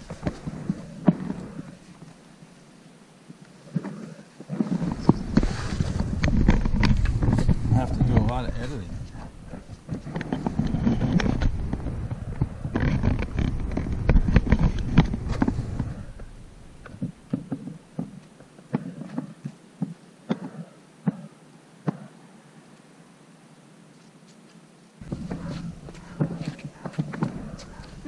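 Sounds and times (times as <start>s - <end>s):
puppies rumbling against microphone: 3.6s - 18.1s, 25.0s - 28.0s
paws clicking on stone: 25.0s - 28.0s.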